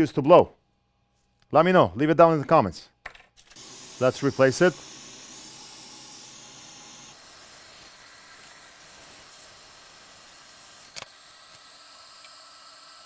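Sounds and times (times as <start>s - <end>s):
hot air station airflow hiss: 3.6s - 13.0s.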